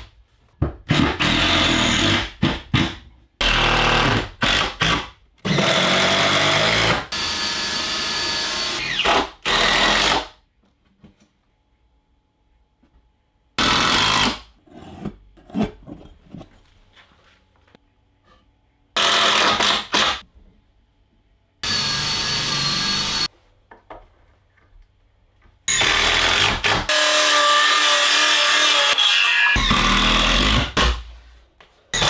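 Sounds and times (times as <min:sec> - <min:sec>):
drill driving a screw: 0:19.0 - 0:20.2, 0:21.6 - 0:23.3, 0:25.7 - 0:30.7.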